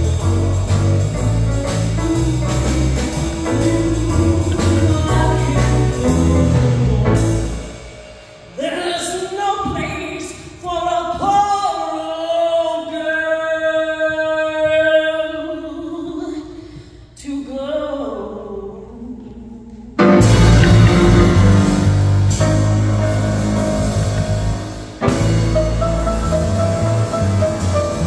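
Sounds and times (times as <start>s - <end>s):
piano accompaniment: 0.0s - 8.8s, 20.0s - 28.0s
woman singing blues: 3.3s - 7.4s, 8.6s - 20.0s.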